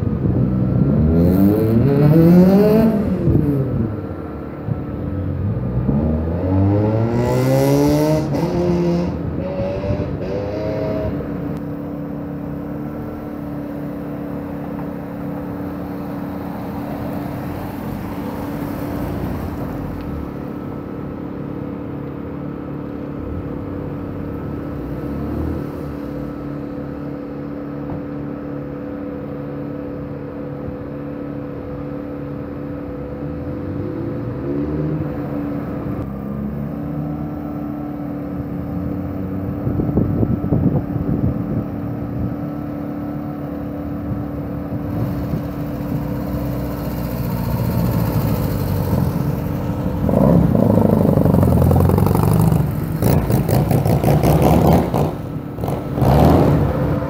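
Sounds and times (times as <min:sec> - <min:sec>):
engine drone: 0:00.0 - 0:57.0
car accelerating hard: 0:00.3 - 0:04.0, 0:05.4 - 0:11.6, 0:44.5 - 0:57.0.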